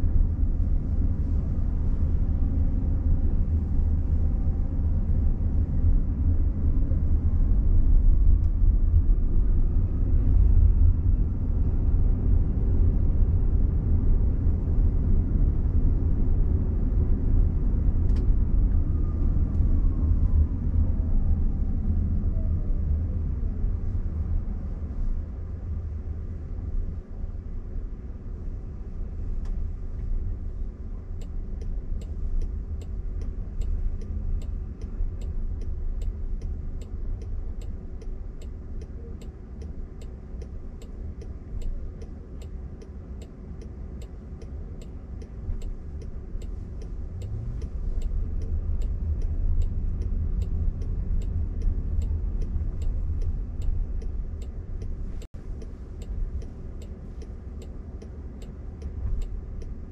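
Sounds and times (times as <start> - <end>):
road and tyre rumble: 0.0 - 59.9
turn signal ticking: 31.1 - 59.9.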